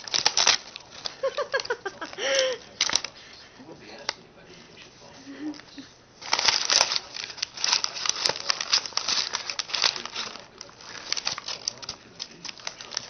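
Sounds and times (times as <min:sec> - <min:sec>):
paper bag crinkling: 0:00.0 - 0:04.1, 0:05.1 - 0:13.0.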